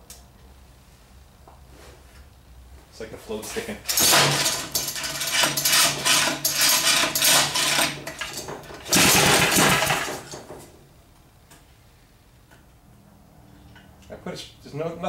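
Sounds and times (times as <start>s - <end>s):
small engine running roughly: 3.9s - 10.4s.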